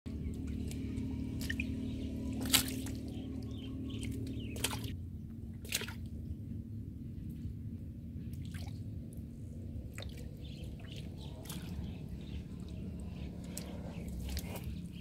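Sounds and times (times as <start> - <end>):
steady low hum: 0.1 - 15.0
fish splashing in water: 0.3 - 6.1, 9.9 - 15.0.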